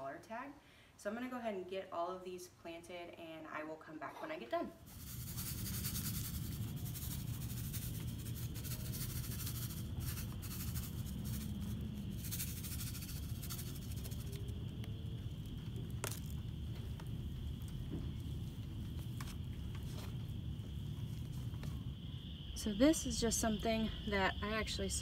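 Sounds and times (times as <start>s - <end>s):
hand rustling in potting mix: 4.8s - 21.9s.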